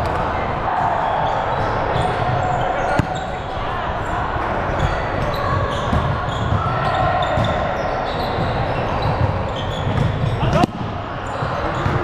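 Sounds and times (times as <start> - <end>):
murmur of voices: 0.0 - 12.0
volleyballs thudding on gym floor: 2.2 - 3.4, 5.9 - 6.7, 8.4 - 12.0.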